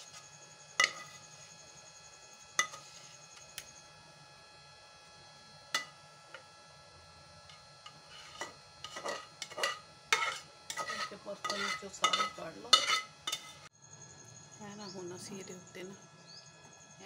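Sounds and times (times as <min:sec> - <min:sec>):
spoon stirring in a bowl: 0:07.8 - 0:13.7.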